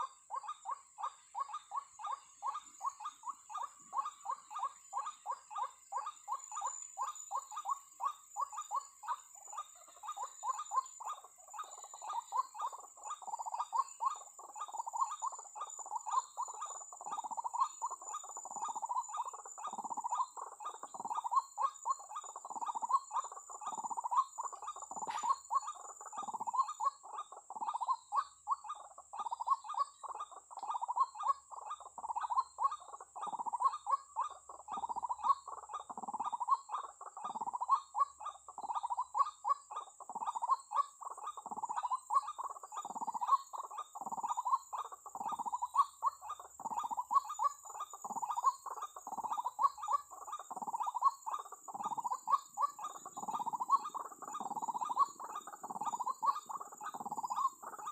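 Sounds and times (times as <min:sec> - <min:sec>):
bird calling rapidly: 0:00.0 - 0:57.9.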